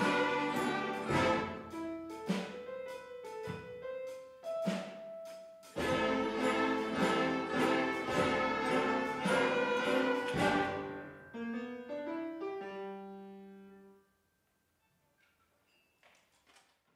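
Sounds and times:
orchestra playing swing music: 0.0s - 11.3s.

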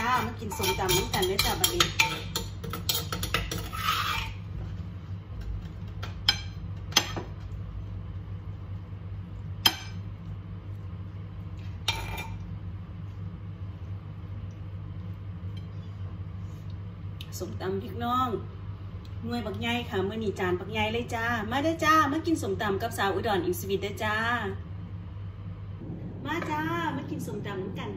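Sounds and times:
spoon scraping in clay mortar: 2.7s - 4.5s
low hum: 24.4s - 27.9s.

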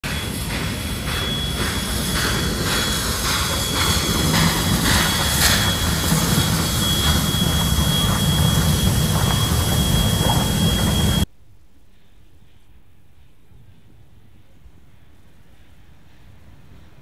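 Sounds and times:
steam locomotive chuffing: 0.0s - 11.3s
steady high whine: 0.1s - 11.3s
running gear rumble: 4.5s - 11.3s.

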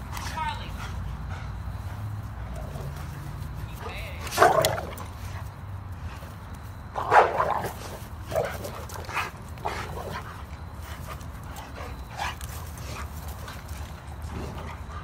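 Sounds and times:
dogs barking: 3.8s - 5.4s, 7.0s - 10.3s.

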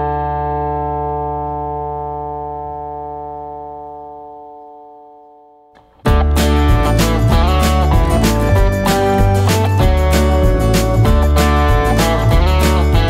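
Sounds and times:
held chord ringing: 6.1s - 13.0s.

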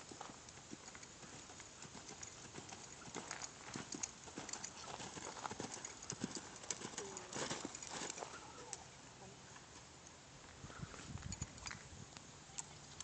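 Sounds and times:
horse trotting on soft dirt: 0.0s - 8.8s.

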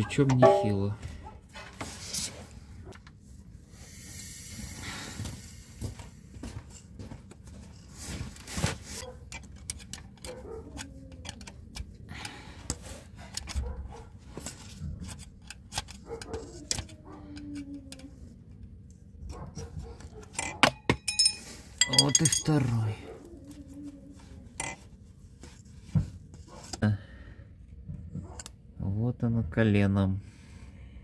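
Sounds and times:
screwdriver clicking and scraping metal: 8.9s - 12.0s, 12.7s - 13.7s, 14.5s - 18.1s.

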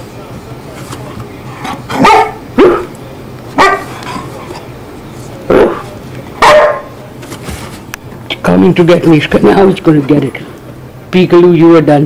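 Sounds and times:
small dog barking: 1.9s - 2.9s, 3.6s - 4.0s, 6.4s - 7.0s.

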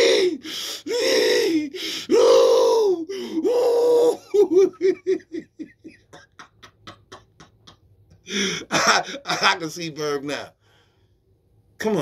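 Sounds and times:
man crying out: 0.0s - 5.7s
man laughing: 3.5s - 10.2s.

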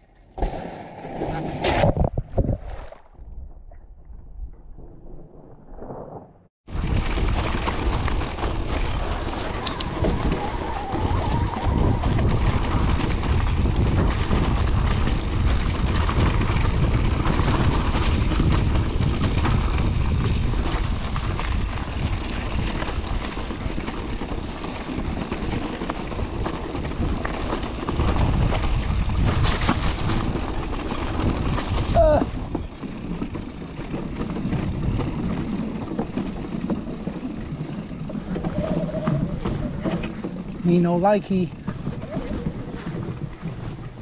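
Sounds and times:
wind rumble on microphone: 1.5s - 44.0s
tyre roar over gravel: 6.0s - 44.0s
bike clicks and knocks: 6.8s - 40.9s.

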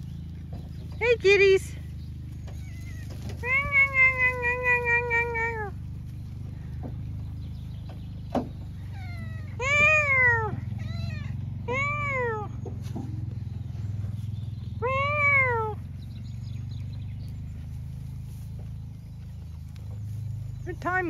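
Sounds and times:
cat meowing: 2.6s - 5.7s, 8.9s - 12.5s, 14.8s - 15.8s.

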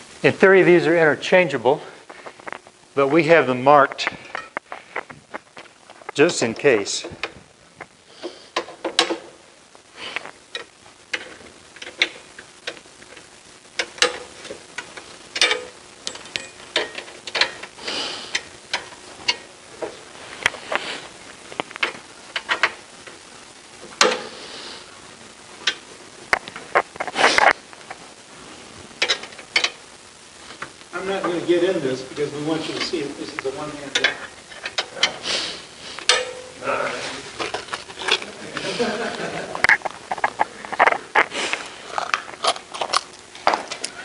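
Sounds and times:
rustling: 1.8s - 44.0s
metal poles clicking and knocking: 13.8s - 17.7s, 21.6s - 22.8s, 24.0s - 24.4s, 29.0s - 29.8s, 36.0s - 36.6s.

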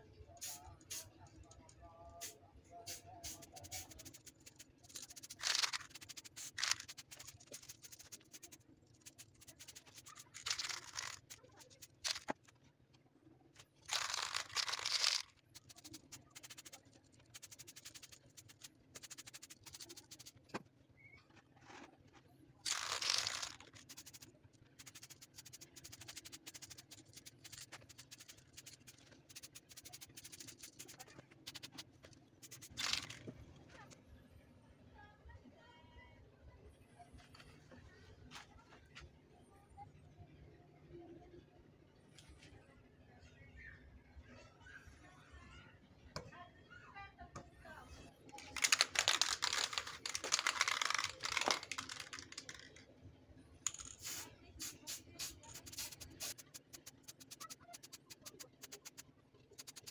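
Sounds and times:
spray-paint can hissing: 0.4s - 1.1s, 2.2s - 12.3s, 13.9s - 20.3s, 22.7s - 31.8s, 32.4s - 33.2s, 48.6s - 52.7s, 53.7s - 59.0s, 59.6s - 59.9s.

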